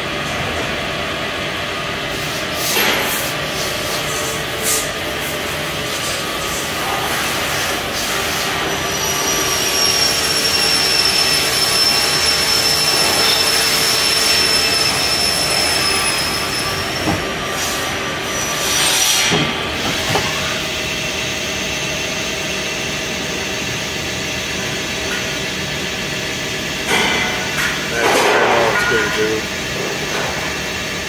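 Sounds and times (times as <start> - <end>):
lathe spindle whine: 3.5 - 31.0.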